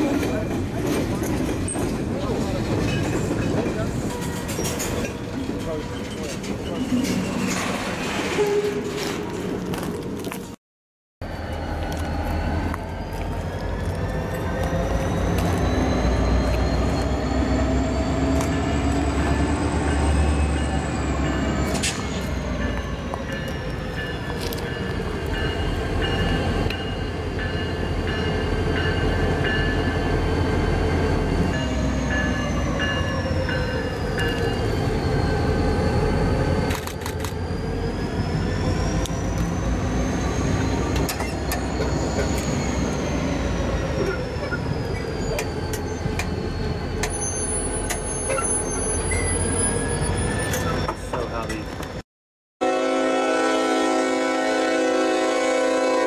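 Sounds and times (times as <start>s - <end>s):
wheel flanges squealing: 2.5s - 9.1s, 31.0s - 51.9s
diesel locomotive engine rumble: 11.2s - 52.0s.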